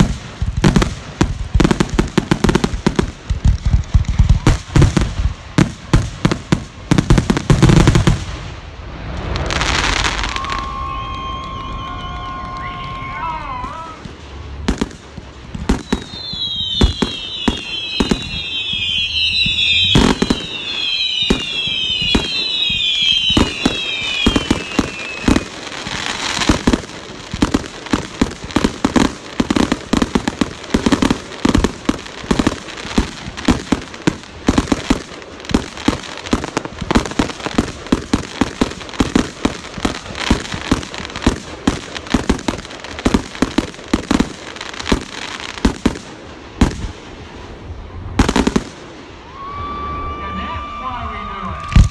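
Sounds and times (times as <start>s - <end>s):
firework bangs and crackle: 0.0s - 51.9s
firework whistles: 8.9s - 14.4s, 15.5s - 47.1s, 48.2s - 51.9s.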